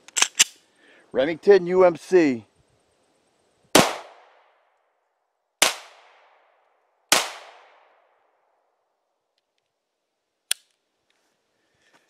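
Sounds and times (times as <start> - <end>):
pistol shots with echo: 3.8 - 4.4, 5.6 - 6.4, 7.1 - 8.0.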